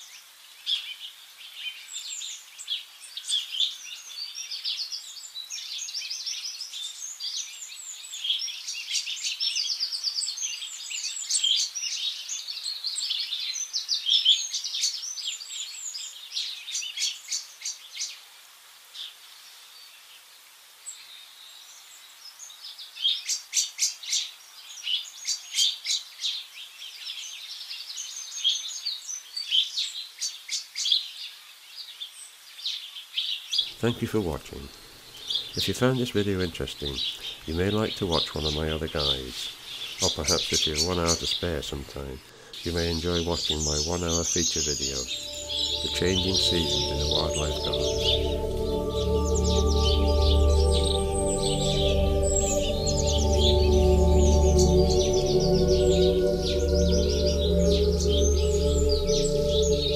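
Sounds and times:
songbirds chirping and trilling: 31.9 - 59.9.

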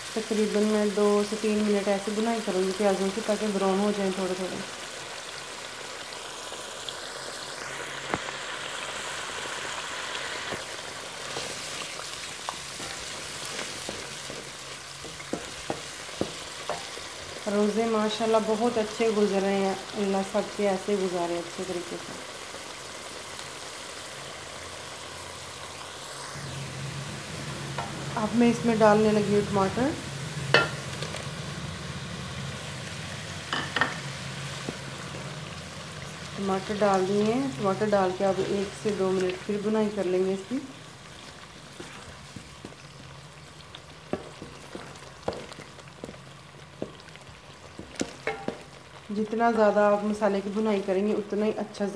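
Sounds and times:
onion sizzling in hot oil: 0.0 - 51.9
wooden spatula knocking on pan: 15.0 - 16.9, 47.8 - 48.7.

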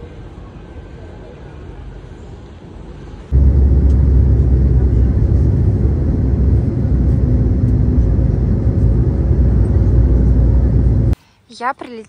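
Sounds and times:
jet engines rumbling: 3.0 - 11.2.

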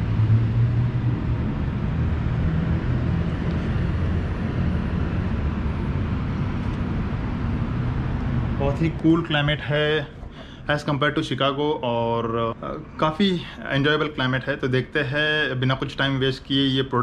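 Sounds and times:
distant traffic: 0.0 - 17.0
rooftop machinery drone: 0.0 - 17.0.

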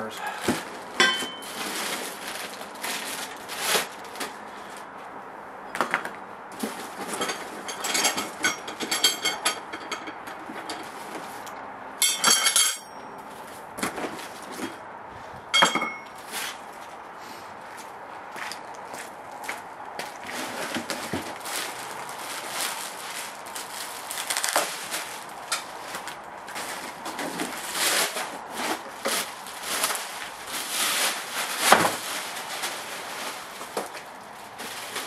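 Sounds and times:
plastic film crinkling: 0.4 - 5.0, 20.1 - 35.0.

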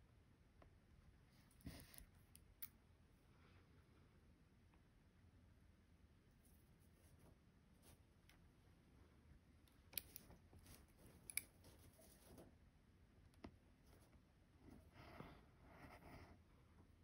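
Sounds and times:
faint fabric rustling: 10.1 - 12.6.

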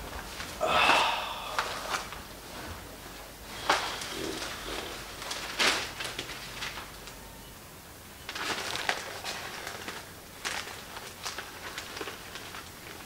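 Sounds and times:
newspaper pages rustling: 1.6 - 7.2, 8.2 - 13.0.

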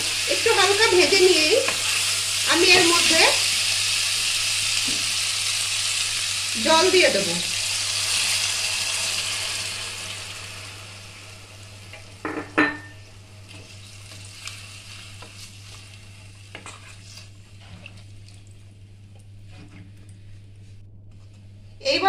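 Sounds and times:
water hissing in hot oil: 0.0 - 11.8, 13.5 - 17.4
wooden spatula stirring vegetables: 0.4 - 3.4, 13.5 - 18.1.

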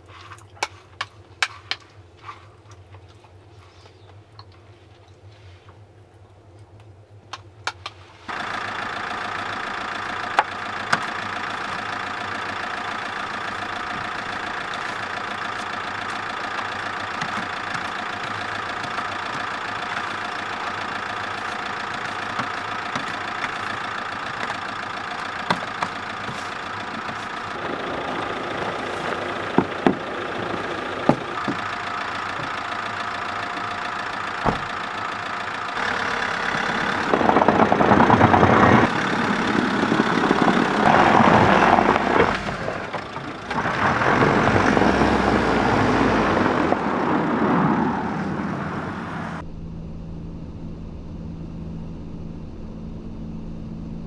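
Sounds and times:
van engine idling: 5.2 - 54.0
snow brush scraping windscreen: 26.2 - 30.5.

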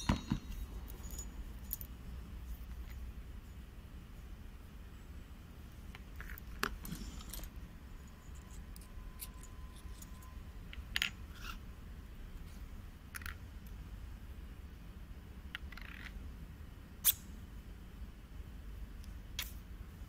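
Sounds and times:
steady low hum: 0.0 - 20.0
metal parts clicking: 5.9 - 11.6.

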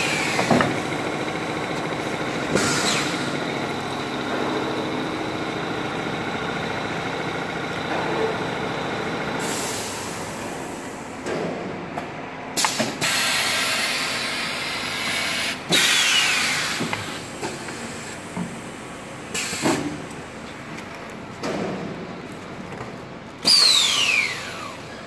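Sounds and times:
pneumatic air hisses: 2.6 - 3.3, 9.4 - 10.2, 12.6 - 18.2, 19.3 - 20.0, 23.4 - 24.7.

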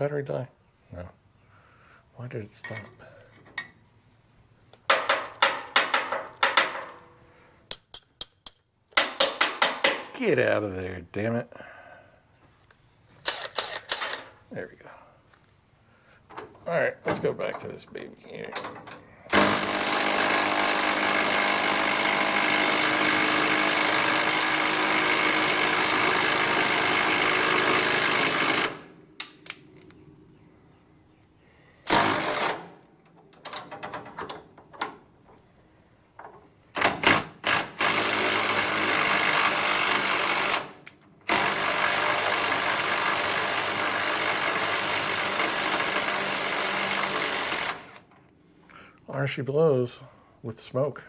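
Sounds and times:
impact wrench hammering: 4.9 - 7.1, 7.7 - 10.1, 18.6 - 29.4.

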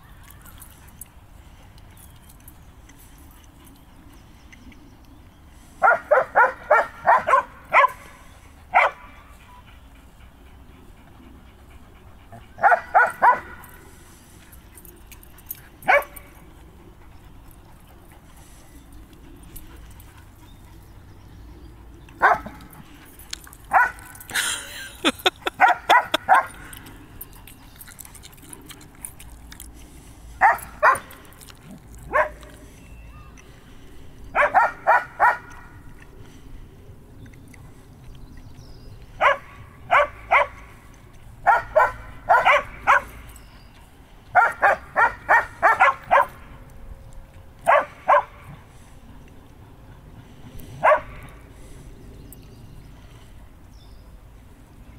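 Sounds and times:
dog barking: 5.8 - 8.0, 8.8 - 9.0, 12.6 - 13.6, 22.2 - 22.6, 30.4 - 31.1, 32.1 - 32.4, 34.4 - 35.5, 39.2 - 40.6, 41.5 - 43.1, 44.4 - 46.3, 47.7 - 48.4, 50.8 - 51.2.

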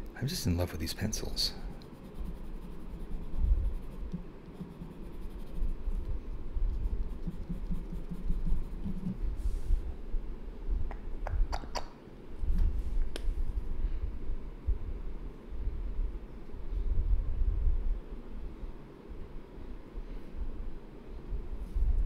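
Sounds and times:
low rumble of hand movement: 1.1 - 11.5, 12.3 - 19.3, 20.0 - 22.0
pencil scratching on paper: 1.7 - 6.1, 6.8 - 9.2.

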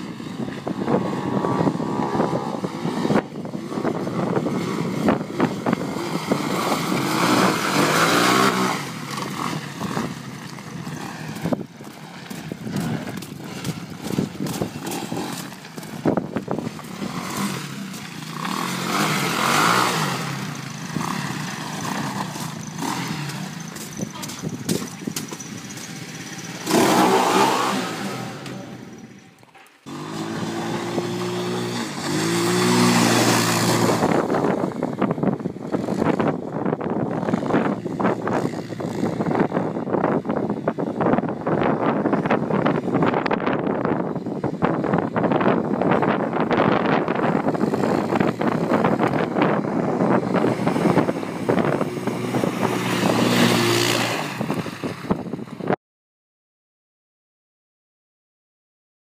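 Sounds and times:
engine revving with clear pitch: 0.0 - 11.6, 12.2 - 29.2, 29.8 - 36.4, 47.2 - 54.9
quad bike engines revving: 0.0 - 55.8.

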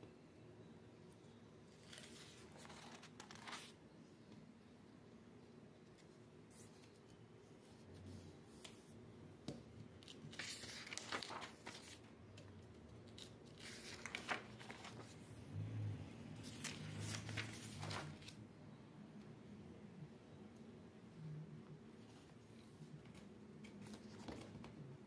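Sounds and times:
book pages rustling: 1.7 - 3.8, 5.9 - 8.9, 10.0 - 15.3, 16.4 - 18.4, 22.1 - 24.8.

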